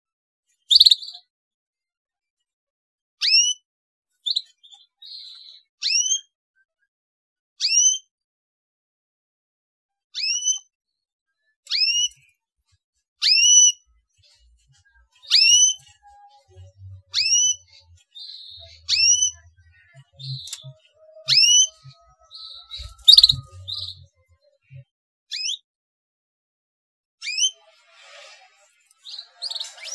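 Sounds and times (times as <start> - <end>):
soft chirps: 14.9 - 24.8
rising whistle calls: 22.3 - 23.9.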